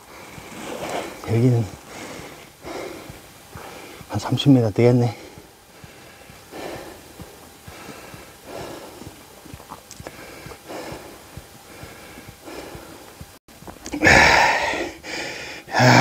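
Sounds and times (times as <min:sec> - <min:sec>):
person breathing heavily: 0:00.0 - 0:16.0
loud gasping exhale: 0:14.0 - 0:16.0.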